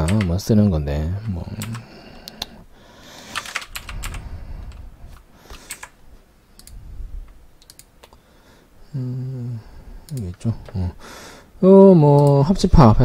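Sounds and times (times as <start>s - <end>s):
computer keyboard and mouse clicks: 0.0s - 0.4s, 3.3s - 6.0s, 6.6s - 8.2s, 12.1s - 12.5s
faint low rumble: 6.0s - 7.6s.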